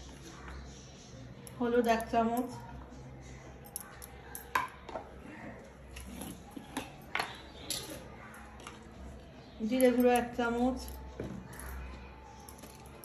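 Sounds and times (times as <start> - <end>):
spoon and dishes clinking: 3.6 - 5.2, 5.9 - 8.9.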